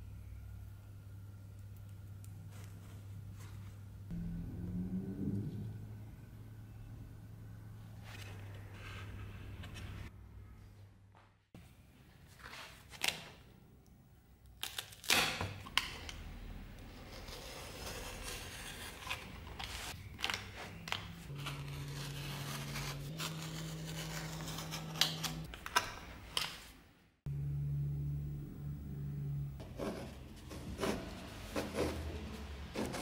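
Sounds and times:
low steady hum: 0:00.0 - 0:10.8, 0:27.2 - 0:33.0.

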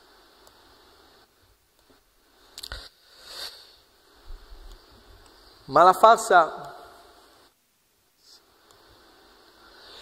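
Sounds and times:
short breathy hiss: 0:02.2 - 0:05.7, 0:08.2 - 0:10.0.

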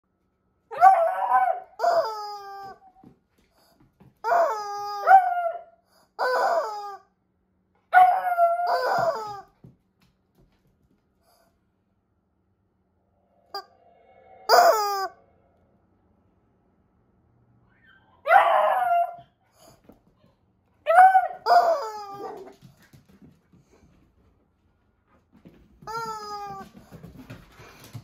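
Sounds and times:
rubber chicken toy screaming: 0:06.2 - 0:07.0, 0:14.5 - 0:15.2.

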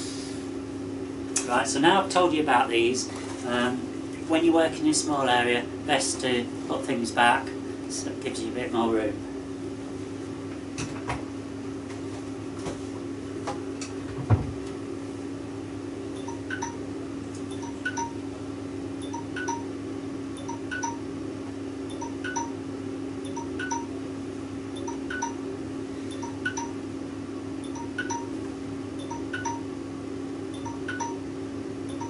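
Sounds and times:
oven fan hum: 0:00.0 - 0:32.0
alarm chime melody: 0:17.6 - 0:18.2, 0:19.0 - 0:19.7, 0:20.4 - 0:21.0, 0:21.9 - 0:22.6, 0:23.3 - 0:23.9, 0:27.7 - 0:28.3, 0:29.0 - 0:29.7, 0:30.6 - 0:31.2.

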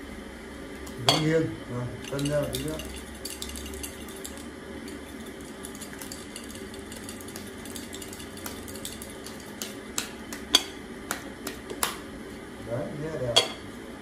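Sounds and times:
game pieces rattling in bowl: 0:02.1 - 0:09.6.

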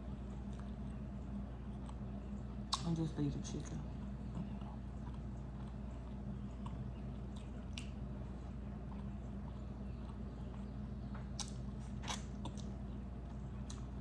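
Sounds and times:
low hum: 0:00.0 - 0:14.0
person chewing: 0:01.6 - 0:02.8, 0:04.0 - 0:14.0
wet mouth smacks: 0:11.4 - 0:12.7.

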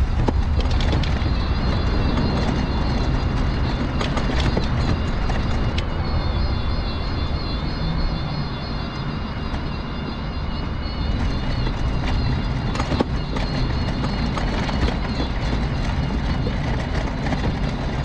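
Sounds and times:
wheels rumbling on paving: 0:00.0 - 0:18.0.

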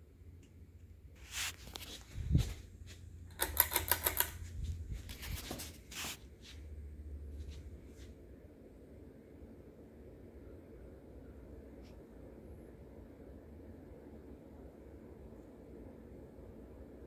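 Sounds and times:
fan motor humming: 0:00.0 - 0:17.0
pull-chain switch clicking: 0:03.3 - 0:04.4.

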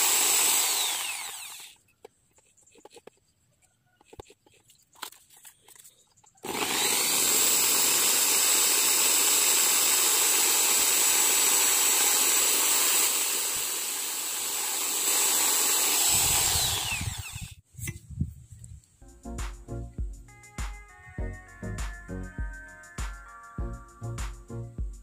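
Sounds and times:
electric drill whining: 0:00.0 - 0:01.8, 0:06.4 - 0:17.6.

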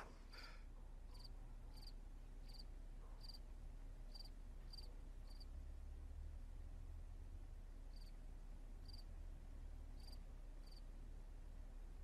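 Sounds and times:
low steady hum: 0:00.0 - 0:12.0
cricket chirping: 0:01.1 - 0:03.4, 0:04.1 - 0:05.5, 0:07.9 - 0:08.2, 0:08.8 - 0:09.1, 0:10.0 - 0:10.8.

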